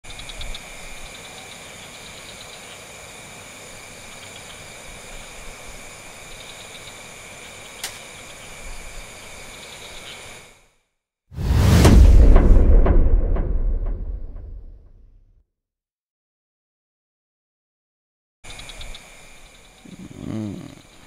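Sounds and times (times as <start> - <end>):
steady background hiss: 0.1 - 10.8, 18.5 - 21.0.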